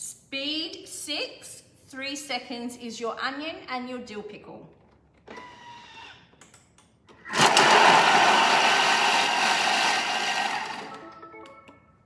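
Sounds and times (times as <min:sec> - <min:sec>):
blender blades chopping: 0:07.3 - 0:11.0.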